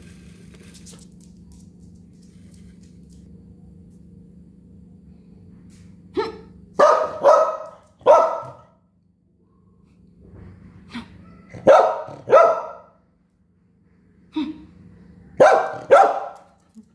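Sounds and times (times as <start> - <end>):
dog barking: 6.2 - 8.8, 11.2 - 13.0, 15.4 - 16.5.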